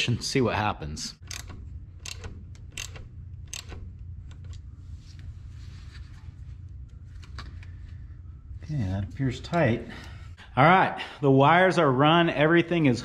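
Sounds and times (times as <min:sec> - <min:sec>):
steady low hum: 0:00.0 - 0:13.0
wires and terminals clicking: 0:01.2 - 0:04.7.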